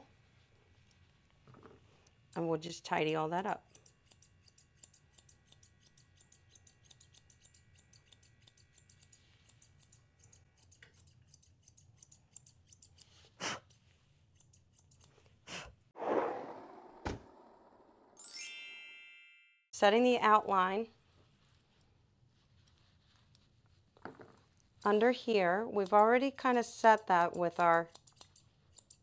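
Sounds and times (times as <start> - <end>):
shears snipping fur: 3.3 - 15.4, 24.4 - 29.0
loud sudden sounds: 16.0 - 18.2.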